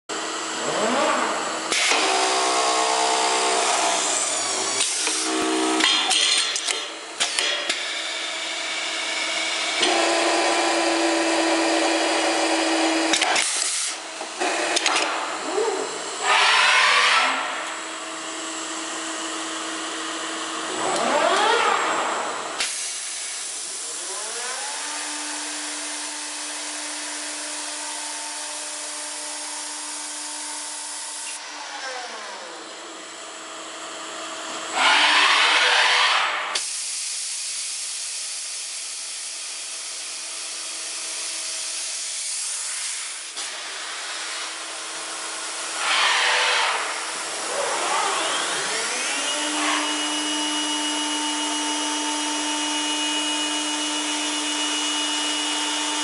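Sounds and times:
woodworking machine motor whine: 0:00.1 - 0:06.1, 0:07.8 - 0:13.4, 0:14.0 - 0:22.6, 0:23.5 - 0:36.6, 0:39.1 - 0:56.0.

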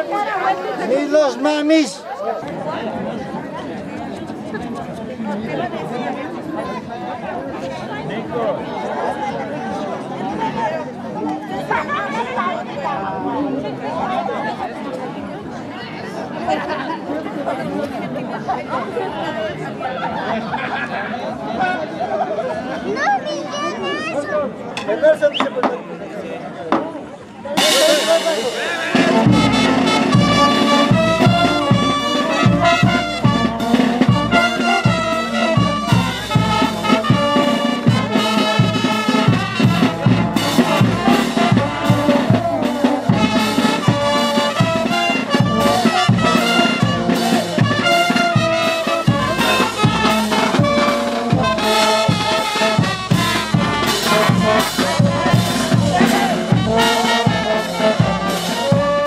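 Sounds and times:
steady drum beat: 0:27.6 - 0:59.0
trumpets and trombones: 0:27.6 - 0:59.0.

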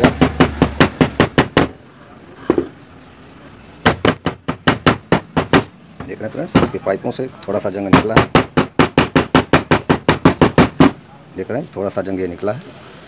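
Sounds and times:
rapid knocking on metal stove: 0:03.9 - 0:06.8, 0:07.8 - 0:11.0.

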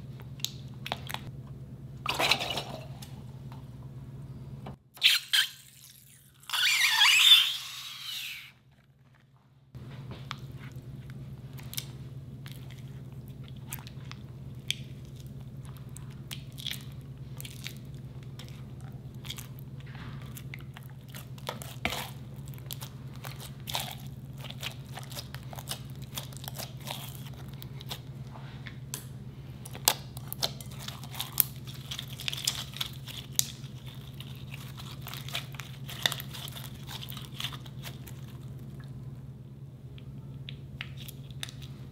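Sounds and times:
steady low hum: 0:00.0 - 0:05.0, 0:05.8 - 0:41.9
slime squelching and crackling: 0:10.3 - 0:28.3, 0:29.7 - 0:39.0.

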